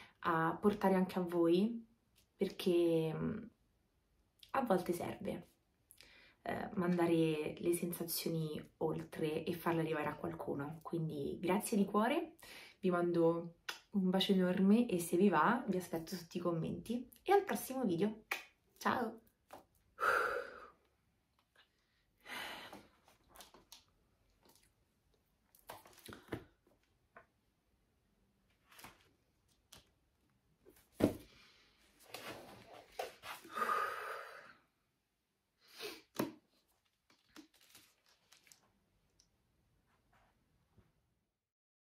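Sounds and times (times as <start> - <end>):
book page turns: 23.0 - 24.7, 25.6 - 26.9, 28.5 - 30.0, 32.0 - 33.5, 36.2 - 38.7
paper rustling: 28.5 - 30.0, 36.6 - 38.8.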